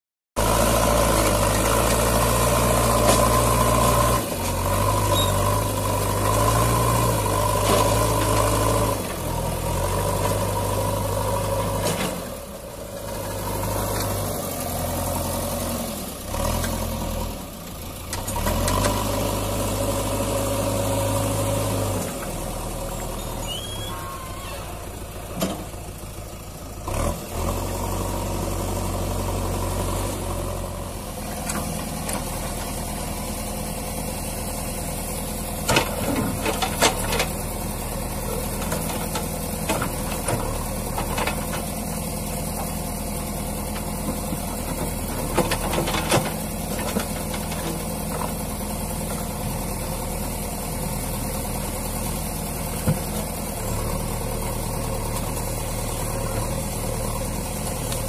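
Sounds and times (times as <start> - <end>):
diesel engine running: 0.4 - 58.0.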